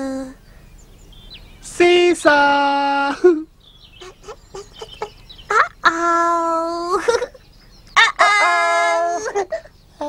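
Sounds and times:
high chirpy voice: 0:00.0 - 0:00.4, 0:04.0 - 0:07.3.

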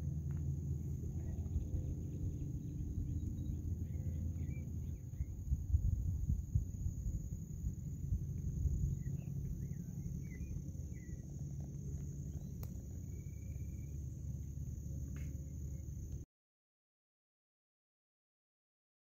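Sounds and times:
wind rumble on microphone: 0:00.0 - 0:16.2
high-pitched insect drone: 0:00.2 - 0:16.2
faint bird chirps: 0:00.8 - 0:06.0, 0:08.4 - 0:16.0.

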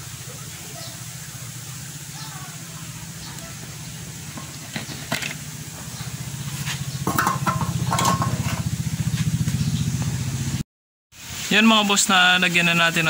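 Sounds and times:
motorcycle engine running: 0:01.4 - 0:10.6.

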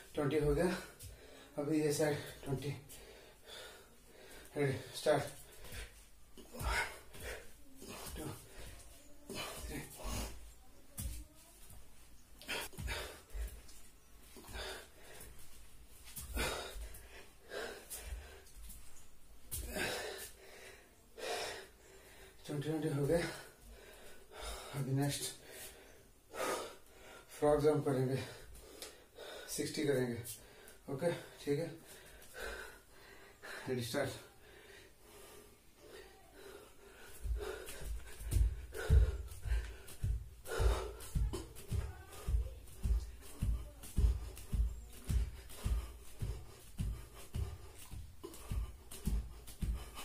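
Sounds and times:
man breathing hard: 0:00.0 - 0:10.5, 0:12.4 - 0:22.4, 0:23.1 - 0:27.4, 0:28.1 - 0:29.6, 0:30.3 - 0:50.0.

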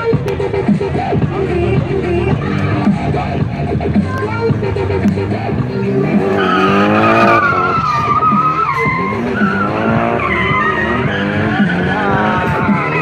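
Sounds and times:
car engine revving: 0:00.0 - 0:13.0
tyres squealing: 0:04.0 - 0:13.0.

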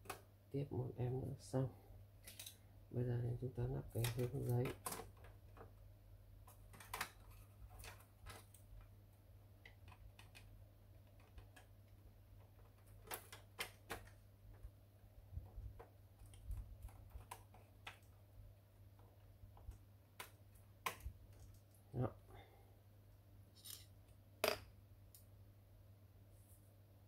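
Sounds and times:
faint low hum: 0:00.0 - 0:27.0
plastic parts clicking: 0:02.2 - 0:02.6, 0:03.9 - 0:05.7, 0:06.5 - 0:08.9, 0:09.6 - 0:14.7.

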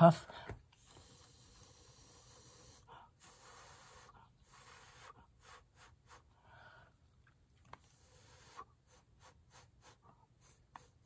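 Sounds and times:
breath puffs hissing: 0:00.8 - 0:06.9, 0:07.8 - 0:11.0.

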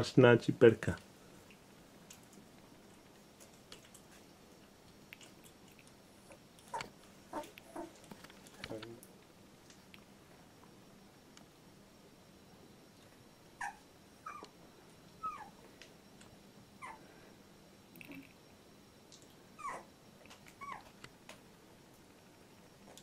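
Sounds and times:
puppy whimpering: 0:06.6 - 0:08.0, 0:13.6 - 0:14.5, 0:15.2 - 0:15.6, 0:16.8 - 0:17.0, 0:19.6 - 0:19.9, 0:20.5 - 0:21.0.

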